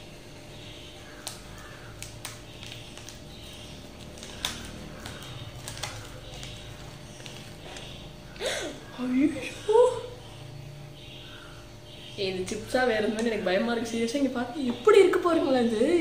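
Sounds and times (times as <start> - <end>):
packet crinkling: 0.8 - 8.2
scissors snipping foil packet: 1.0 - 8.0.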